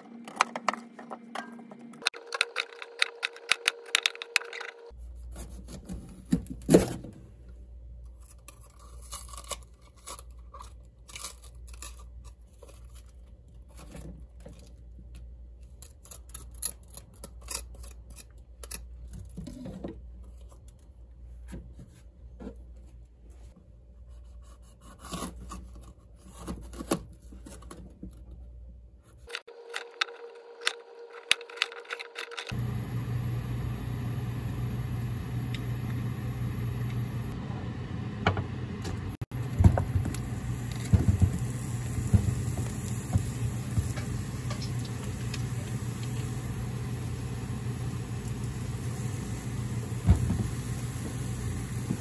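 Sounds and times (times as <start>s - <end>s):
low machine hum with hiss: 32.3s - 52.0s.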